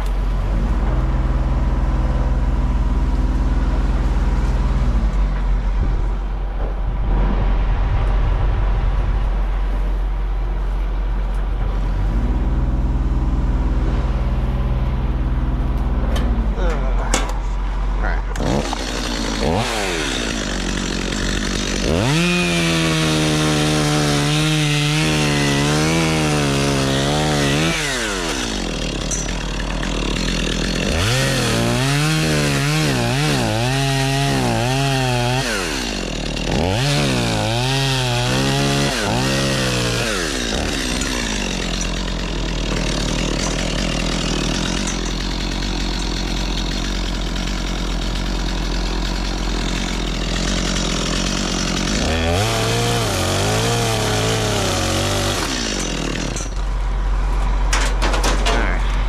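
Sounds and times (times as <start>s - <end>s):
machine drone: 0.0s - 22.4s
chainsaw cutting wood: 18.3s - 56.7s.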